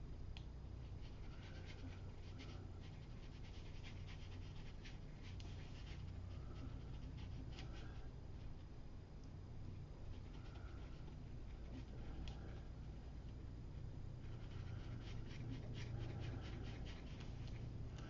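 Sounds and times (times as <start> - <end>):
low steady hum: 0.0 - 18.0
brush scratching on paper: 0.8 - 8.5, 10.0 - 13.0, 14.2 - 17.8.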